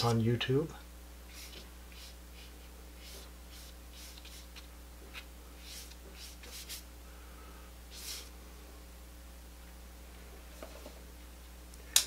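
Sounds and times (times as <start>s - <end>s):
paintbrush swishing on paper: 1.3s - 6.9s, 7.9s - 8.3s.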